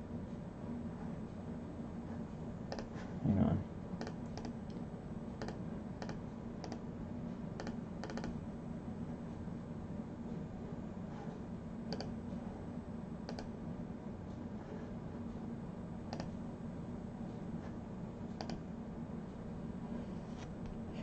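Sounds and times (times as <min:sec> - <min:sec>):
steady low hum: 0:00.0 - 0:21.0
computer mouse clicks: 0:02.7 - 0:02.9, 0:04.0 - 0:04.8, 0:05.4 - 0:06.8, 0:07.6 - 0:08.4, 0:11.9 - 0:12.2, 0:13.3 - 0:13.5, 0:16.1 - 0:16.4, 0:18.4 - 0:18.6.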